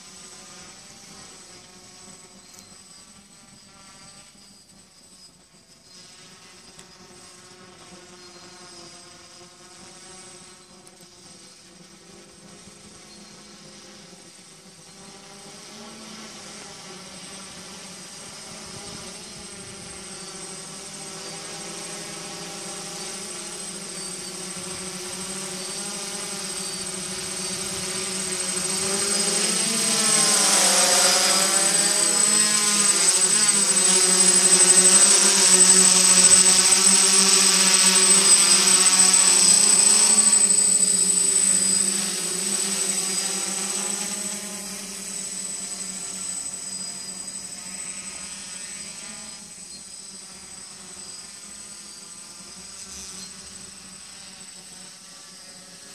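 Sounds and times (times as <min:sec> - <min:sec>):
drone motors buzzing: 0:00.0 - 0:55.9
high whine: 0:21.3 - 0:55.9.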